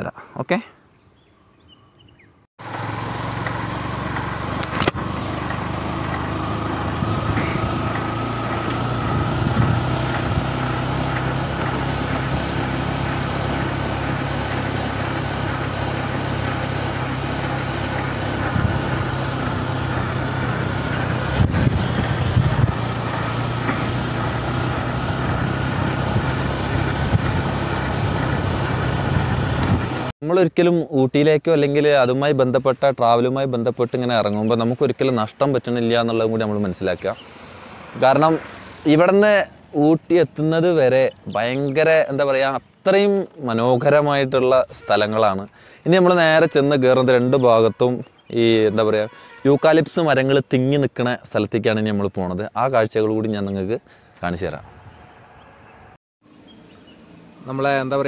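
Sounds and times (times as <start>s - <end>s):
motorcycle engine running: 2.6s - 30.1s, 34.1s - 47.3s.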